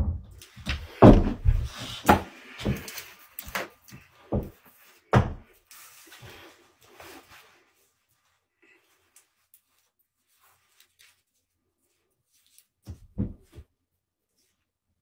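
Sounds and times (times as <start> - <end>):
irregular thumps and knocks: 0.0 - 2.9, 4.3 - 5.5, 12.9 - 13.6
rustling: 0.4 - 14.9.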